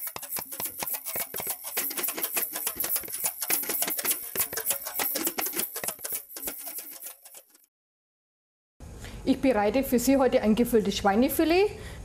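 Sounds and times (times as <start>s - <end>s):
rapid sharp clicks and ticks: 0.0s - 7.7s.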